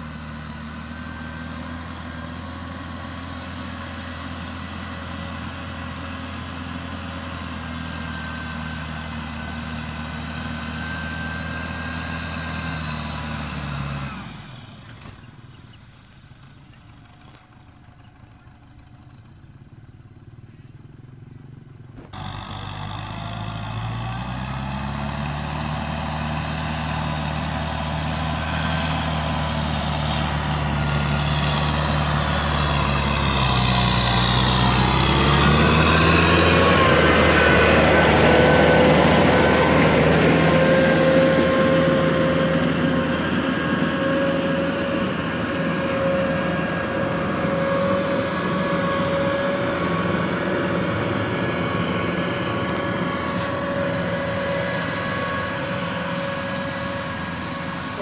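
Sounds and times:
tractor engine under load: 0.0s - 58.0s
steady whine: 36.4s - 58.0s.

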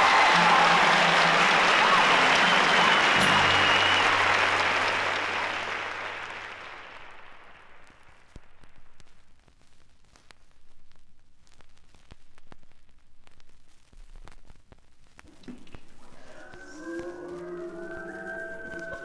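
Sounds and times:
audience applauding: 0.0s - 8.4s, 16.2s - 19.0s
held song notes: 16.2s - 19.0s.

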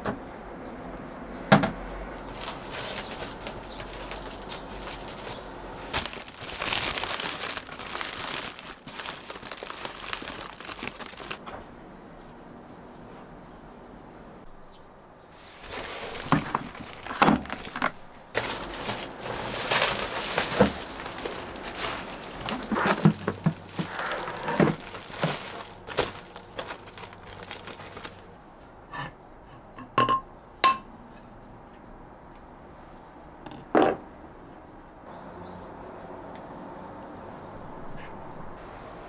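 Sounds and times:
rustling plastic sack: 2.2s - 11.4s, 15.4s - 28.4s
earthenware jar knock: 29.8s - 30.9s.

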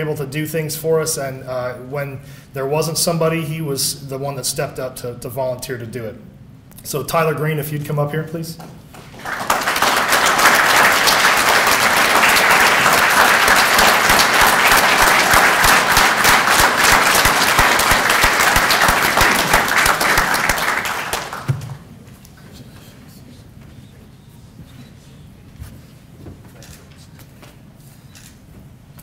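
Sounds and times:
audience applause: 9.0s - 21.9s.

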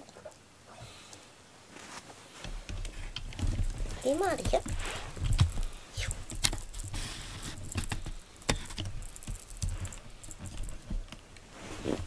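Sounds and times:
cat clicking and scratching: 2.5s - 11.2s
faint jingling: 3.3s - 11.0s.

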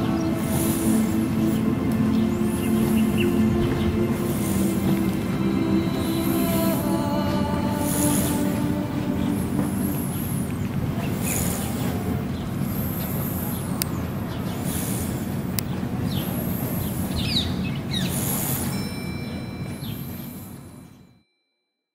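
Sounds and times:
steady low rumble: 0.0s - 17.3s
bird calls: 0.0s - 18.8s
high chirping: 0.0s - 21.0s.

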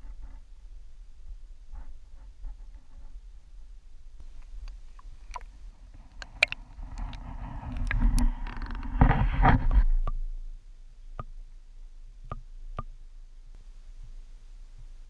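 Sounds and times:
small underwater clicks: 4.2s - 8.8s
water swishing around camera: 4.2s - 10.3s.

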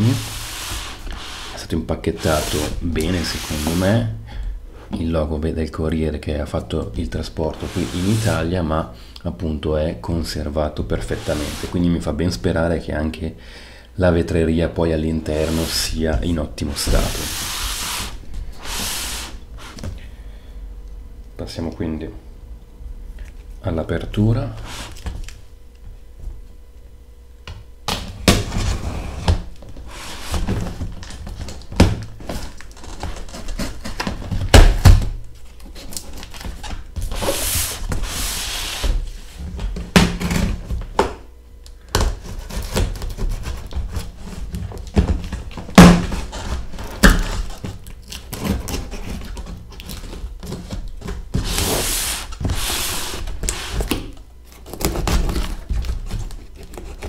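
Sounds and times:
cardboard rubbing: 0.0s - 4.0s, 7.5s - 8.5s, 11.0s - 11.8s, 15.3s - 19.8s, 28.4s - 31.5s, 32.2s - 34.4s, 35.5s - 39.5s, 42.1s - 54.0s, 54.6s - 57.0s
packing tape tearing: 30.0s - 34.9s, 45.5s - 57.0s.

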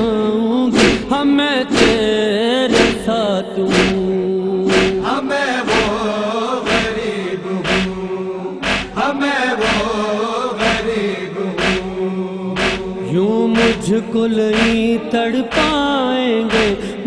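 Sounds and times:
voices chanting a lament: 0.0s - 17.0s
sharp beat: 0.8s - 1.1s, 1.7s - 2.1s, 2.7s - 3.1s, 3.7s - 4.1s, 4.7s - 5.1s, 5.7s - 6.0s, 6.6s - 7.0s, 7.6s - 9.0s, 9.6s - 10.0s, 10.6s - 11.0s, 11.6s - 12.0s, 12.6s - 13.9s, 14.5s - 14.9s, 15.5s - 15.9s, 16.5s - 16.8s.

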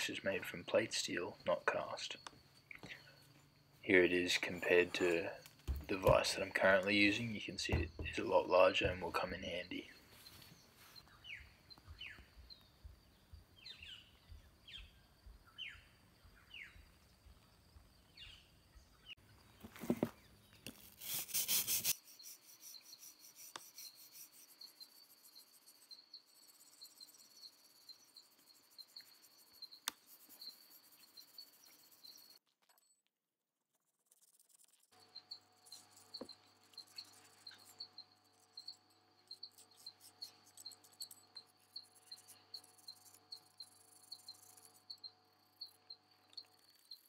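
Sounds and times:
insect trill: 0.0s - 10.4s, 11.0s - 32.4s, 34.2s - 47.0s
bird chirps: 0.0s - 17.4s, 35.0s - 47.0s.

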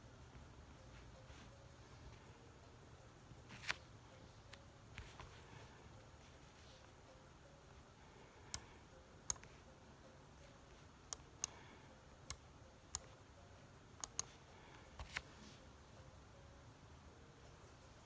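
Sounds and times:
computer mouse clicks: 8.5s - 9.6s, 11.1s - 11.6s, 12.2s - 13.2s, 14.0s - 14.4s.

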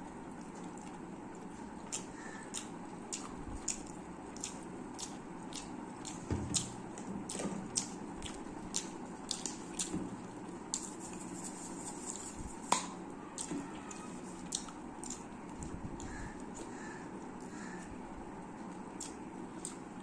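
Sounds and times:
wet eating smacks: 1.9s - 10.1s.

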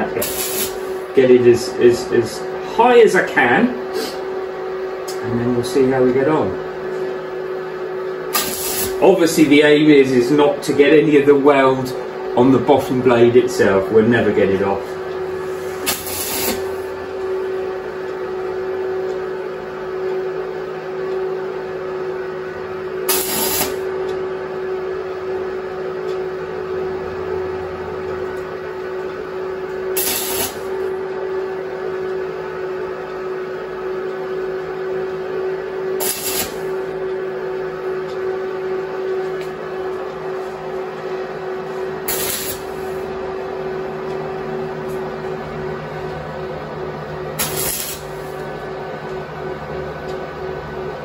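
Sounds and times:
welder arc crackling and hissing: 0.0s - 4.4s, 8.2s - 18.3s, 23.0s - 25.7s, 28.2s - 31.5s, 35.7s - 37.4s, 41.3s - 43.2s, 47.3s - 48.8s
steady hum: 0.0s - 51.0s.

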